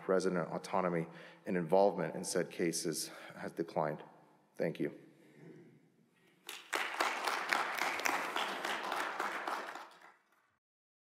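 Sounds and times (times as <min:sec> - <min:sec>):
audience applauding: 0:06.4 - 0:10.6.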